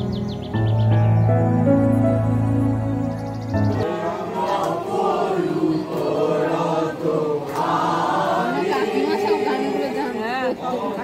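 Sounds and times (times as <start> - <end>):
background music: 0.0 - 5.2
crowd chanting: 3.8 - 11.0.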